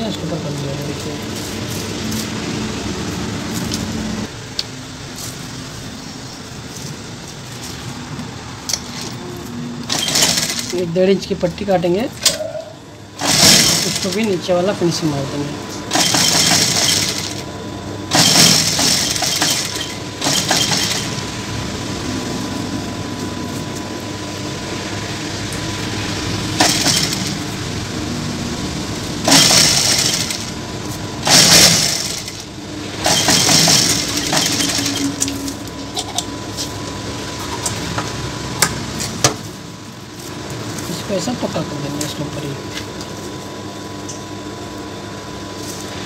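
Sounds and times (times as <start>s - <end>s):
motor hum: 5.8s - 46.0s
sewing machine stitching: 9.9s - 10.8s, 13.2s - 14.2s, 15.9s - 17.4s, 18.1s - 21.2s, 26.6s - 27.4s, 29.2s - 30.5s, 31.2s - 32.4s, 33.0s - 35.2s.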